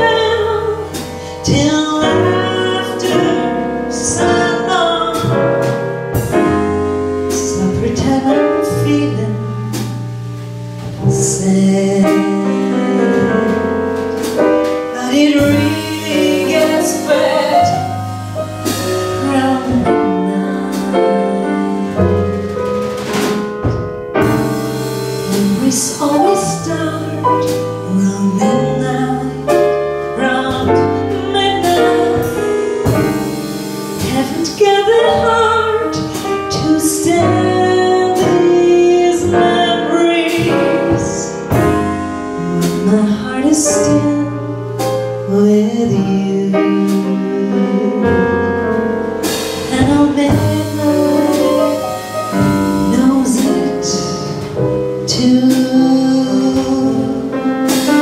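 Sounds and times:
woman singing: 0:00.0 - 0:05.4, 0:07.3 - 0:09.8, 0:11.0 - 0:13.6, 0:14.9 - 0:18.0, 0:18.6 - 0:22.0, 0:25.3 - 0:33.1, 0:34.0 - 0:41.8, 0:42.4 - 0:44.6, 0:45.2 - 0:48.6, 0:49.6 - 0:58.0
double bass: 0:00.0 - 0:58.0
drums: 0:00.0 - 0:58.0
piano: 0:00.0 - 0:58.0.

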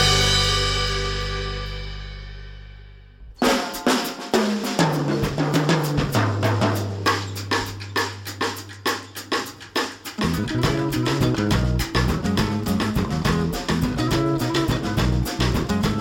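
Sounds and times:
drum kit beat: 0:00.0 - 0:02.6, 0:03.2 - 0:16.0
held music chord: 0:00.0 - 0:02.9
bass line: 0:00.0 - 0:03.4, 0:10.2 - 0:16.0.

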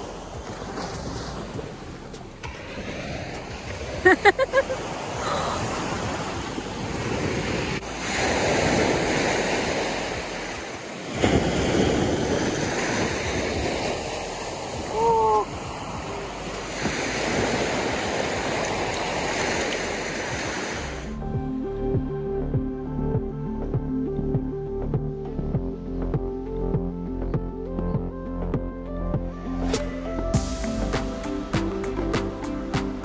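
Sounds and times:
music: 0:00.0 - 0:03.9, 0:13.6 - 0:18.6, 0:21.1 - 0:33.0
small waves washing onto sand: 0:00.0 - 0:21.2
wind on microphone: 0:00.0 - 0:24.5.

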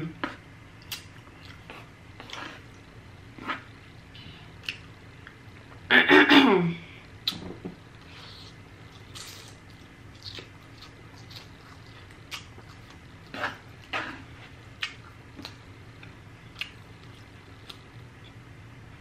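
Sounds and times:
chewing and lip smacks: 0:00.2 - 0:02.8, 0:03.4 - 0:05.4, 0:08.0 - 0:18.4.

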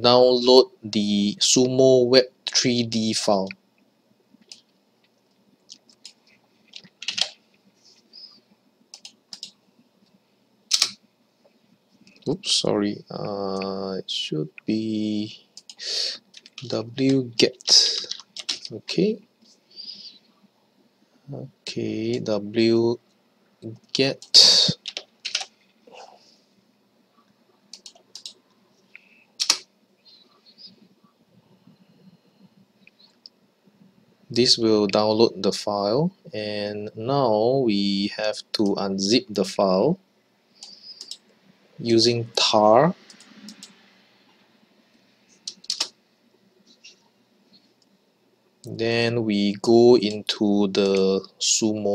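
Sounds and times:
mouse and keyboard clicking: 0:05.9 - 0:07.4, 0:08.9 - 0:09.6, 0:10.7 - 0:11.0, 0:18.0 - 0:18.7, 0:24.8 - 0:25.5, 0:27.7 - 0:28.4, 0:29.4 - 0:29.6, 0:40.6 - 0:41.2, 0:43.1 - 0:43.8, 0:45.4 - 0:45.9
keyboard keystrokes: 0:07.0 - 0:07.4, 0:24.8 - 0:25.5, 0:45.5 - 0:45.9
mouse clicks: 0:40.6 - 0:41.2, 0:43.1 - 0:43.8.

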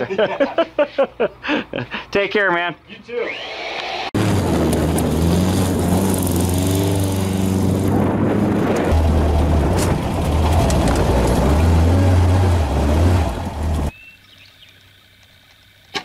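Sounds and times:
buggy engine revving: 0:04.1 - 0:13.9.

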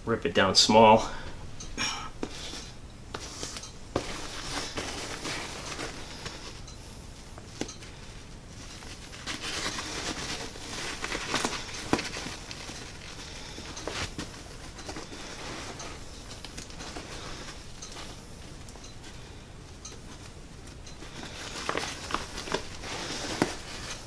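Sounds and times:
tape crinkling: 0:01.6 - 0:24.0
backpack rustling: 0:02.1 - 0:06.6, 0:08.5 - 0:19.2, 0:20.0 - 0:24.0.

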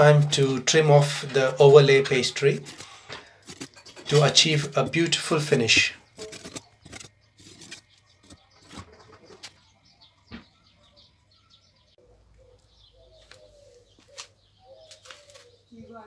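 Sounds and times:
knife crunching pastry: 0:06.1 - 0:08.4
pigeon cooing: 0:10.4 - 0:15.9.

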